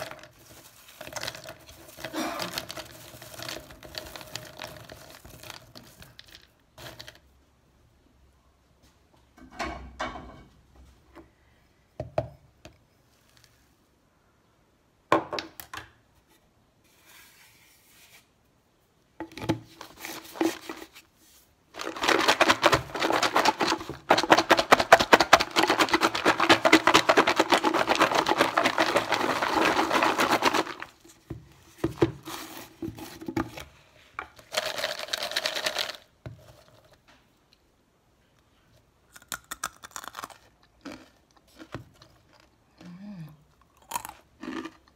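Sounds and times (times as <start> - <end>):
fried pasta rattling in plastic tub: 0.0 - 7.3, 21.7 - 31.1, 34.4 - 37.0.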